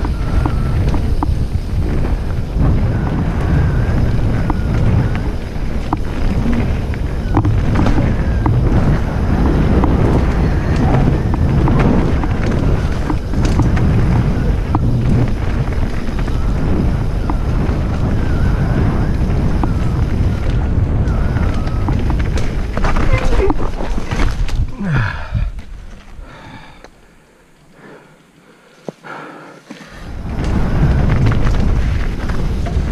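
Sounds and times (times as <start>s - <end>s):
wind buffeting microphone: 0.0s - 26.7s, 30.0s - 32.9s
tyres rumbling over dirt: 0.0s - 26.8s, 29.7s - 32.9s
bike clicks and knocks: 3.9s - 18.4s.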